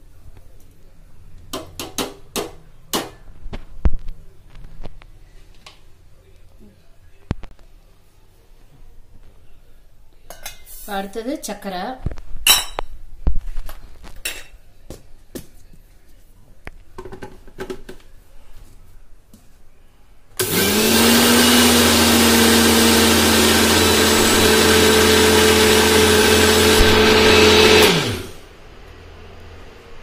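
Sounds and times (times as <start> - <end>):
mixer grinder running: 20.4 - 28.4
motor spinning down: 22.5 - 28.4.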